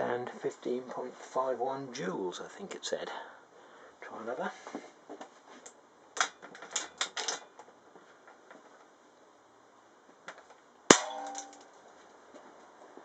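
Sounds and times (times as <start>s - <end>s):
air rifle firing crack: 10.9s - 11.6s.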